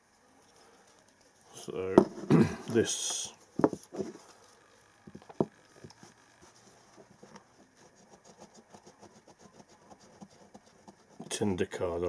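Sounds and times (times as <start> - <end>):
striker scratching tinder card: 5.8 - 11.4.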